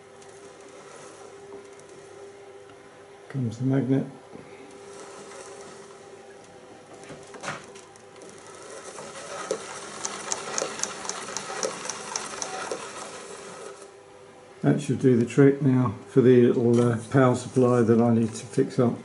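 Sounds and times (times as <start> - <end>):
mechanical clack: 7.4 - 13.8.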